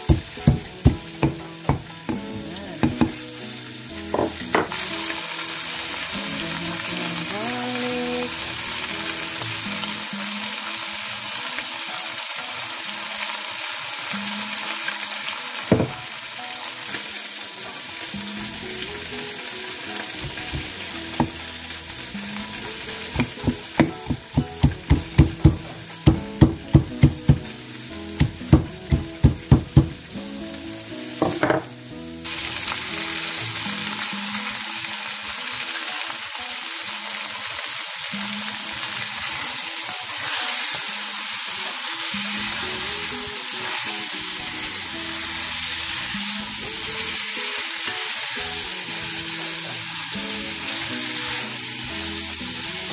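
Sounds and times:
meat frying in oil: 0.0s - 52.9s
pestle pounding in stone mortar: 0.1s - 3.2s, 23.1s - 27.4s, 28.2s - 30.0s.

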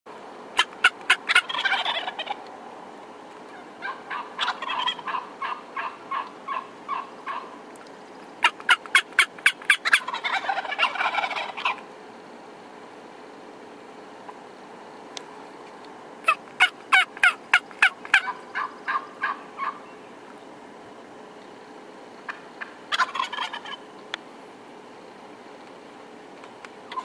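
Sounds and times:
turkey calls: 0.6s - 2.5s, 3.4s - 11.9s, 16.2s - 20.3s, 22.2s - 24.0s
turkeys gobbling: 0.6s - 2.5s, 3.4s - 7.6s, 8.4s - 11.9s, 16.2s - 20.0s, 22.2s - 24.0s.

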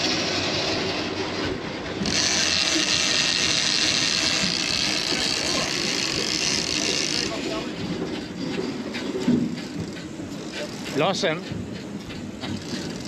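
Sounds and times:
boat engine rumble: 0.0s - 13.0s
fishing reel ratchet screaming: 2.1s - 7.4s.

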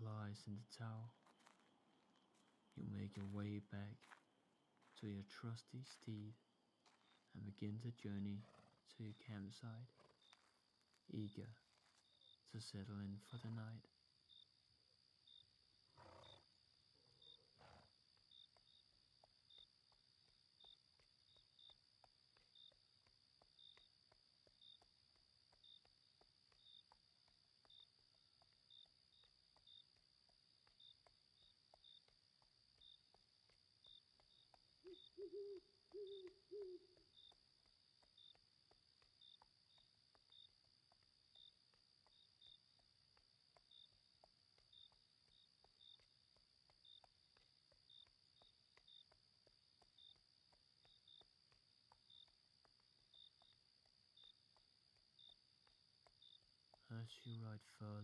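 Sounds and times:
crickets chirping: 0.0s - 58.0s
owl hooting: 34.8s - 37.2s.

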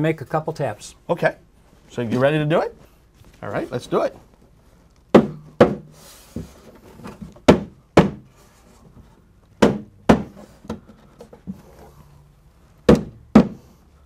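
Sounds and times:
rubber mallet knocking drywall: 5.1s - 5.9s, 7.4s - 8.3s, 9.6s - 10.8s, 12.9s - 13.7s.

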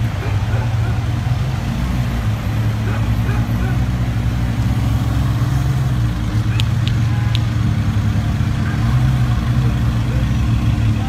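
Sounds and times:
sports car engine at low revs: 0.0s - 11.0s.

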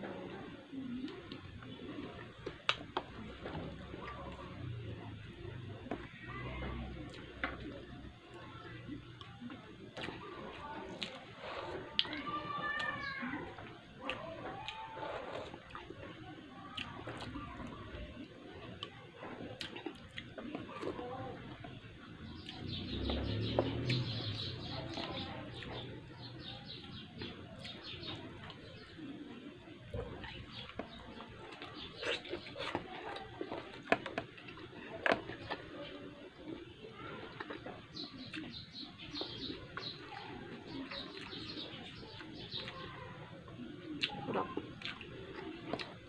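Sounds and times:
person chewing: 13.6s - 16.0s, 18.6s - 24.0s, 30.1s - 35.8s, 37.2s - 38.5s, 44.0s - 46.0s
birds chirping: 19.7s - 46.0s.

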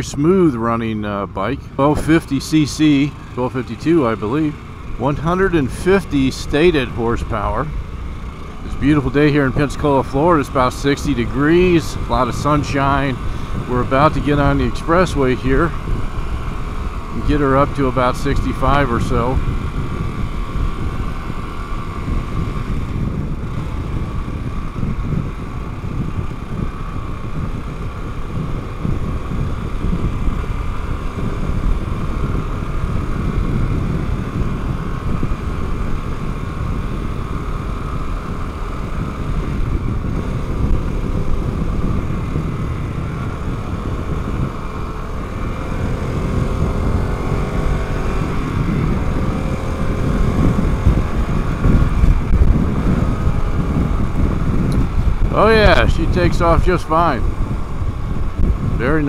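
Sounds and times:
motorcycle engine accelerating: 0.0s - 59.0s
wind noise on microphone: 4.2s - 59.0s.

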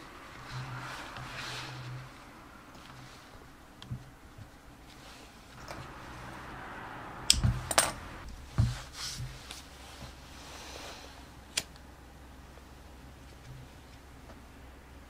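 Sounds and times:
faint rustling: 0.0s - 6.6s.

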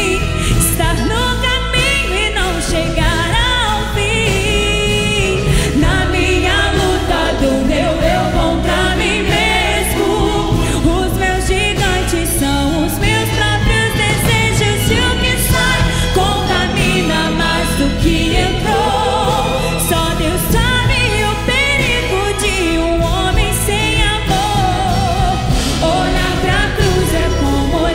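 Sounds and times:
orchestra playing: 0.0s - 27.9s
woman singing into a microphone: 0.0s - 27.9s.

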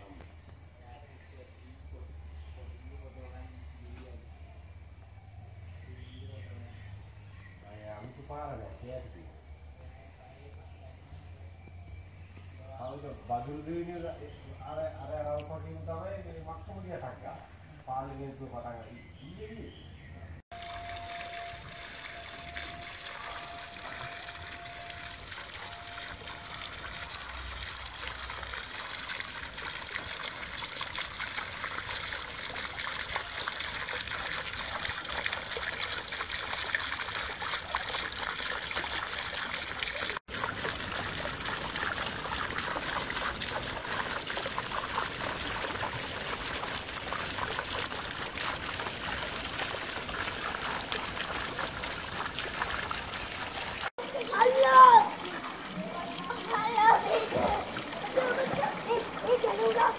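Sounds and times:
fountain water splashing: 20.5s - 59.9s.

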